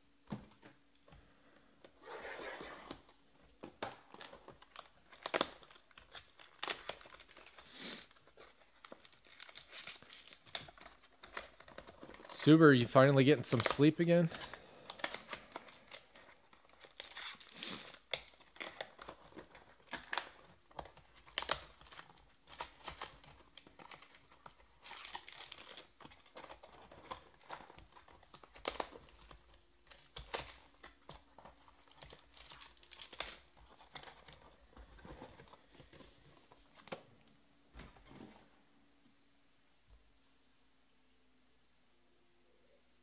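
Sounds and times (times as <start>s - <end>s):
foil wrappers crinkling: 4.0s - 36.1s.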